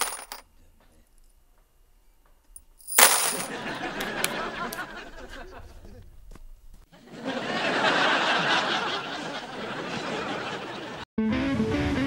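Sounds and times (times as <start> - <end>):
sharp metallic clinks: 2.3 - 3.5.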